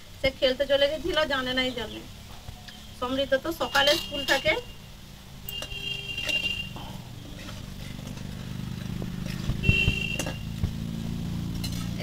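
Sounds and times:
metal utensils knocking wok: 5.5s - 10.8s, 11.4s - 12.0s.

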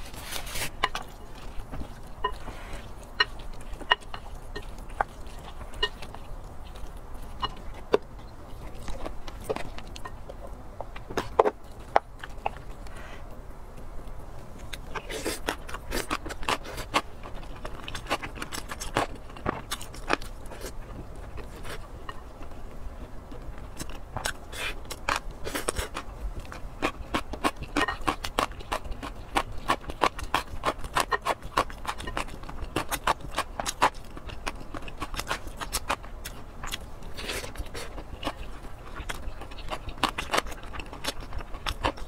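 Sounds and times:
wet chewing and lip smacking: 23.3s - 42.0s.

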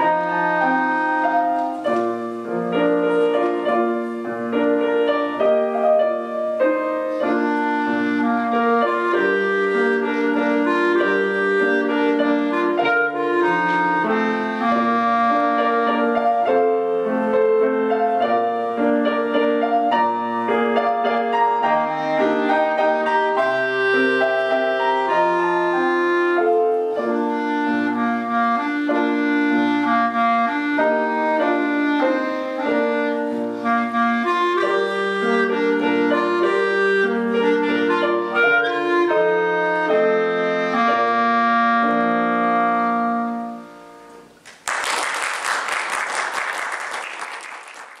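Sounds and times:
clarinet melody: 0.0s - 44.4s
piano accompaniment: 0.0s - 48.0s
audience applause: 44.4s - 48.0s.

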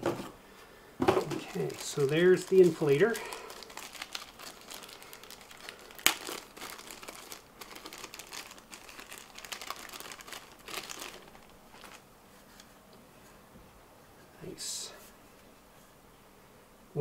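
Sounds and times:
plastic bag crinkling: 1.2s - 12.0s
sharp plastic crack: 5.6s - 11.1s.

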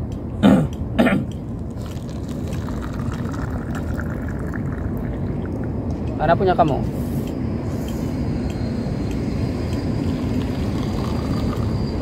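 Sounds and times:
liquid pouring into a paper cup: 1.8s - 5.8s, 10.0s - 11.8s.

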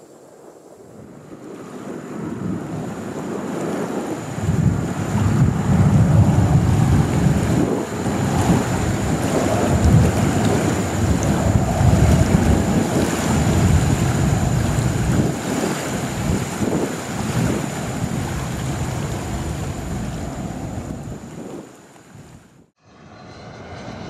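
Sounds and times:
wind buffeting microphone: 0.0s - 22.7s
loud low rumble: 22.8s - 24.0s.

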